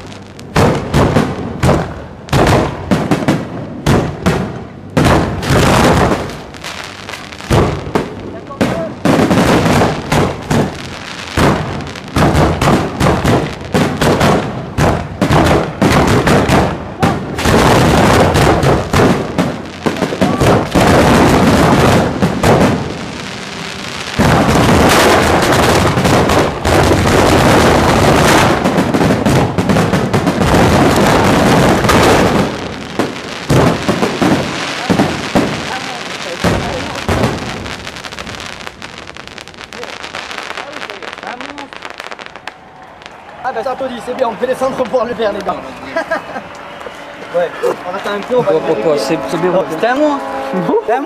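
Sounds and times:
fireworks launching and bursting: 0.0 - 48.6.

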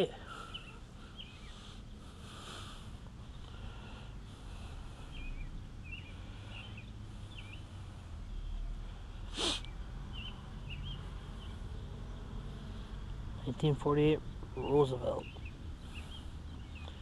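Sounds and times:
low outdoor rumble: 0.0 - 17.0
small birds chirping: 0.0 - 17.0
short sharp hiss: 9.3 - 9.7.

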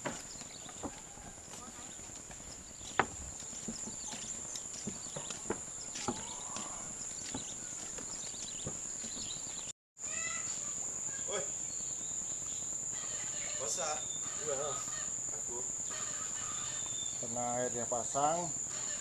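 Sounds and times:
footsteps on wooden boardwalk: 0.0 - 9.7, 16.6 - 17.2
short insect chirps: 9.5 - 19.0
high-pitched insect drone: 10.0 - 19.0.

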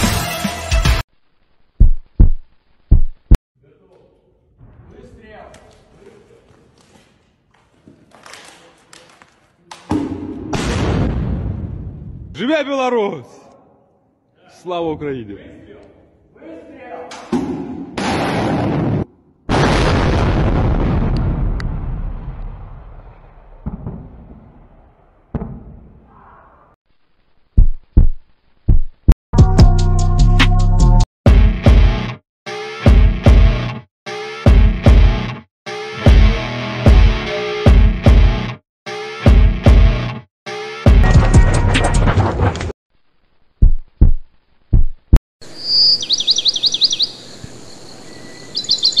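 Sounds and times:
loud sharp booming hits: 10.0 - 12.3, 17.4 - 26.1
explosion rumble: 10.4 - 12.3, 18.0 - 26.2
loud rock music: 34.4 - 42.0.

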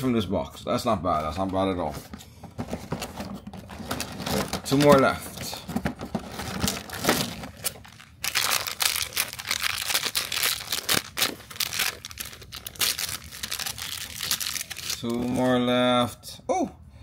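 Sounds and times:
foil wrapper crinkling and tearing: 6.2 - 15.6.

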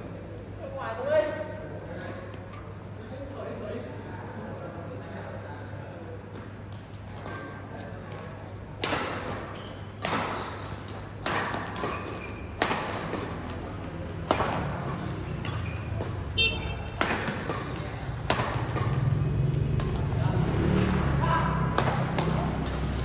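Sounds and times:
rackets hitting shuttlecock: 8.8 - 23.0
shoe squeak: 9.3 - 11.1, 11.7 - 13.5, 14.6 - 18.1.

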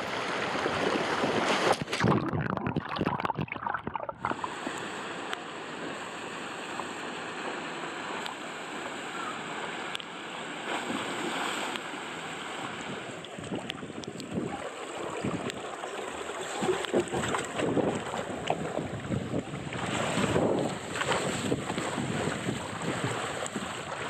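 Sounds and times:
water splashing into pool: 0.0 - 4.9
water rushing down a slide: 0.0 - 10.0, 10.6 - 24.0
water running into trough: 0.7 - 4.6
wind on microphone: 12.8 - 15.6, 16.6 - 24.0.

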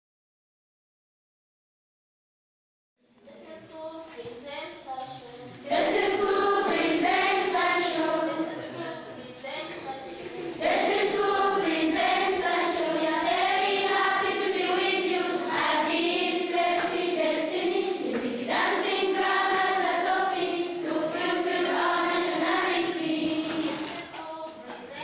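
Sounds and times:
children's choir singing: 5.6 - 25.0.

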